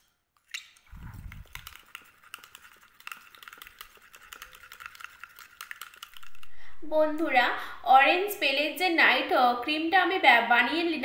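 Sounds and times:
spoon scraping a glass bowl: 1.0 - 6.5.

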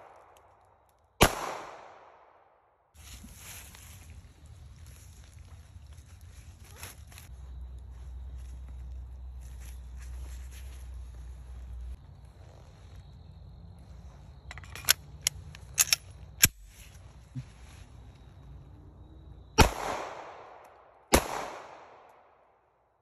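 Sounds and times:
pistol shots echoing: 1.2 - 2.4, 19.6 - 22.2.

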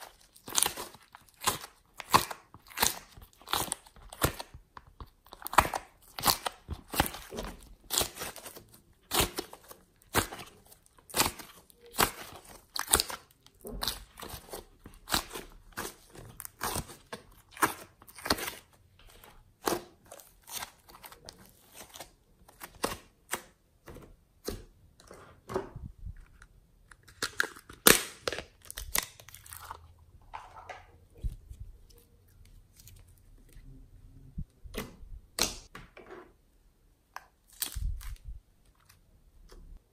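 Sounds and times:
slime crackling and squishing: 0.0 - 23.6, 26.3 - 30.0, 37.3 - 39.1.

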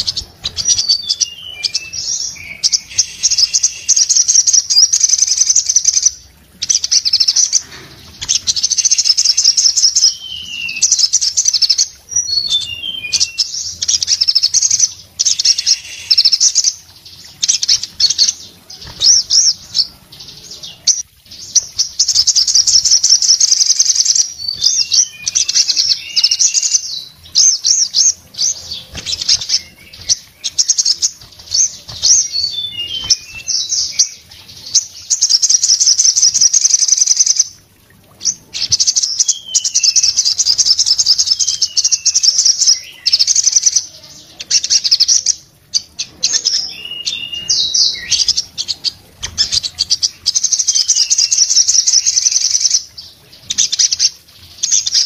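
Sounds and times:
bird down-slurred chirps: 0.0 - 6.1, 21.6 - 34.2
bird twittering trills: 0.0 - 55.0.

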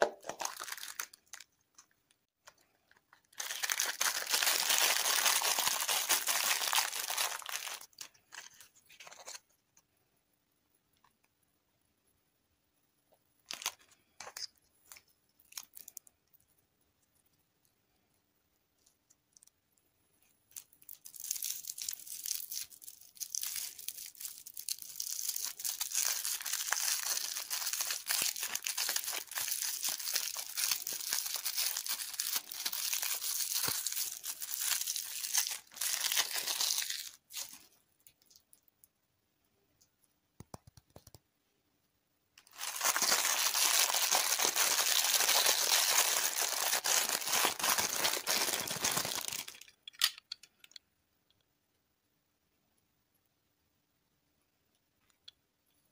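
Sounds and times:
plastic wrapper crinkling: 0.0 - 9.4, 13.4 - 16.1, 20.5 - 38.6, 42.4 - 50.2.

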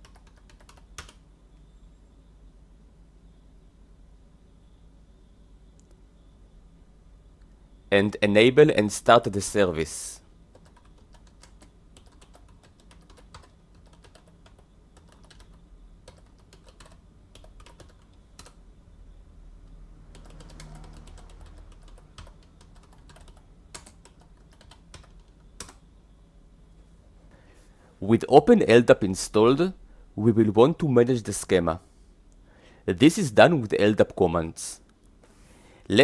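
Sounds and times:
keyboard typing clicks: 0.0 - 1.2, 10.5 - 18.6, 20.1 - 25.8.

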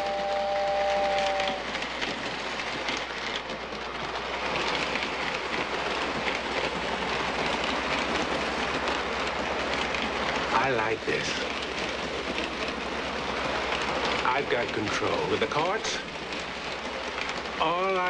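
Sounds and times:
two-tone train whistle: 0.0 - 1.8
model train wheels clattering: 0.0 - 18.0.

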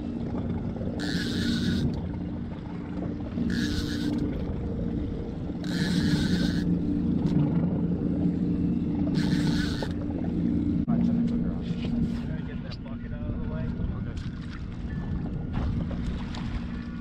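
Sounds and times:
outboard motor idling: 0.0 - 13.0.

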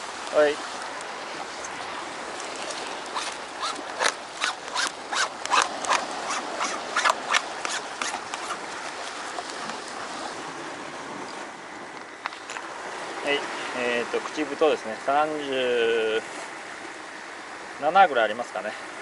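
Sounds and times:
surf washing against rock: 0.0 - 11.5
fishing gear clicks and knocks: 1.0 - 9.9.

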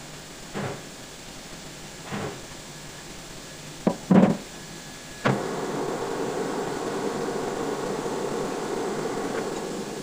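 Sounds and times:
lathe spindle humming: 5.2 - 10.0.

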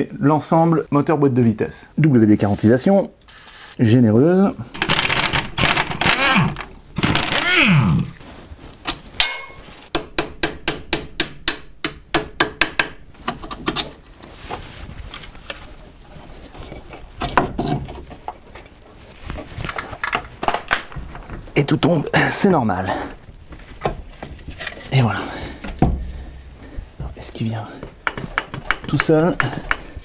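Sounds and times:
pneumatic impact wrench spinning: 4.8 - 7.8.

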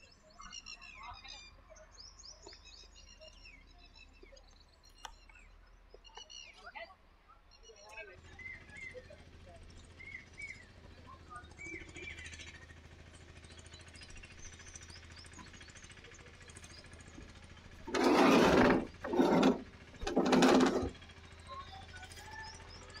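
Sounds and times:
faint bird chirps: 0.0 - 9.0.

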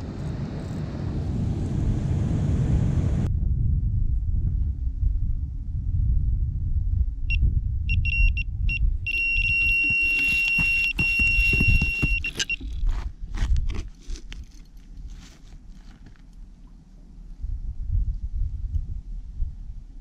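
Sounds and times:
wind rumble on microphone: 0.0 - 20.0
bite alarm beeping: 7.9 - 12.8.

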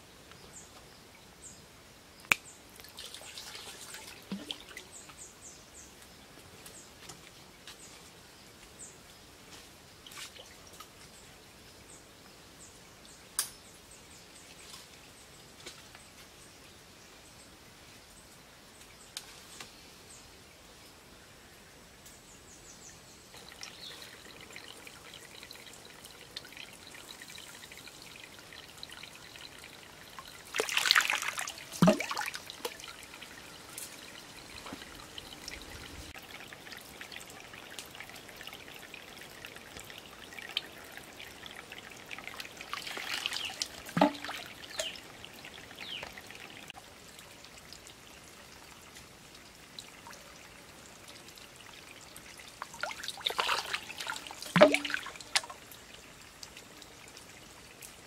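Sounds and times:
water trickling from bamboo pipe: 2.2 - 12.0, 22.0 - 58.0
water splashing and gurgling: 2.8 - 5.0, 23.4 - 46.8, 51.5 - 55.9.

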